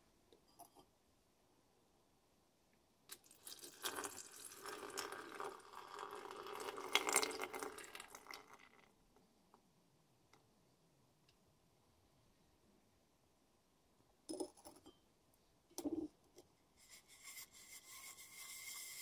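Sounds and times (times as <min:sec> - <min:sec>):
liquid pouring and splashing: 0:03.1 - 0:08.9.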